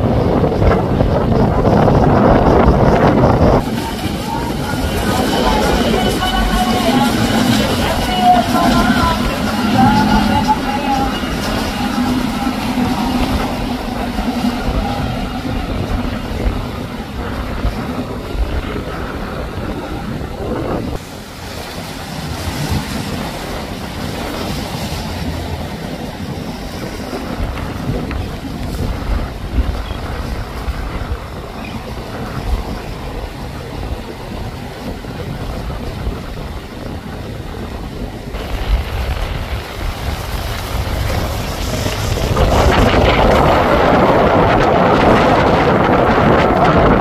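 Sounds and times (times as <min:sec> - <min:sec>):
outboard motors running: 0:00.0 - 0:34.6
choppy water: 0:00.0 - 0:47.0
wind on microphone: 0:00.0 - 0:47.0.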